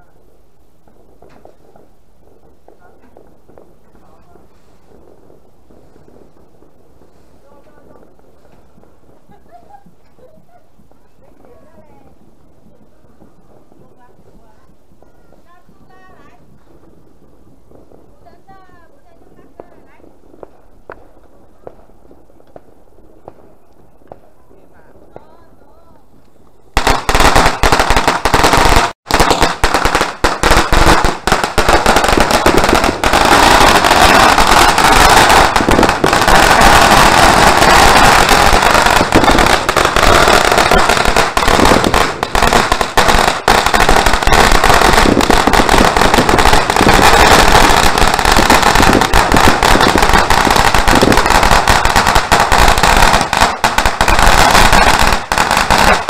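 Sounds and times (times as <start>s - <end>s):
firecrackers crackling: 0.0s - 56.0s.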